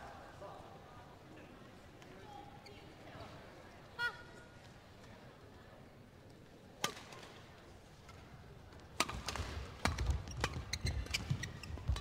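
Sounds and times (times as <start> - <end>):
racket hitting shuttlecock: 9.0 - 11.2.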